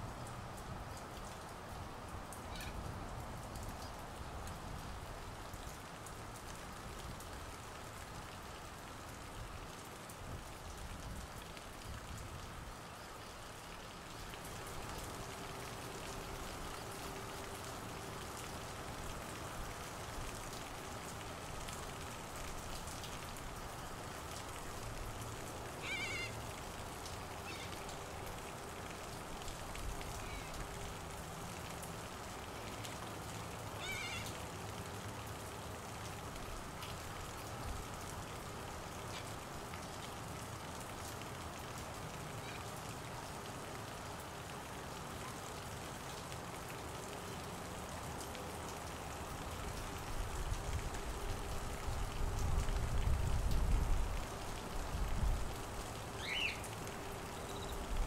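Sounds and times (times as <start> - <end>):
heavy rain on foliage: 0.0 - 58.0
cockatoos harsh calls: 25.8 - 26.3.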